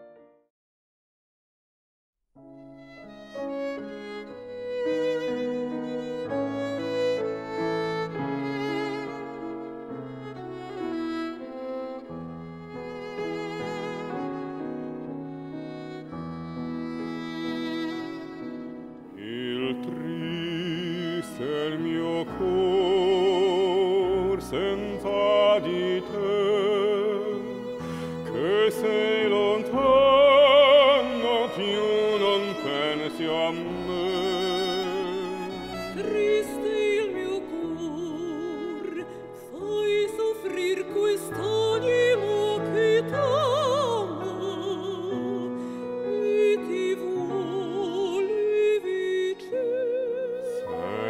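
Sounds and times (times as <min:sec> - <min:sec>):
piano: 0:00.0 - 0:00.5, 0:02.4 - 0:51.0
violin: 0:02.5 - 0:51.0
woman singing opera: 0:19.2 - 0:51.0.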